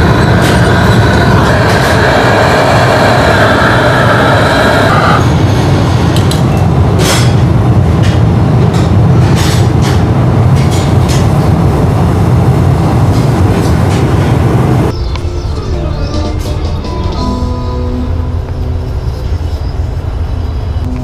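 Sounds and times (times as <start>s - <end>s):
gas burners roaring: 0.0s - 21.0s
quiet music: 14.9s - 21.0s.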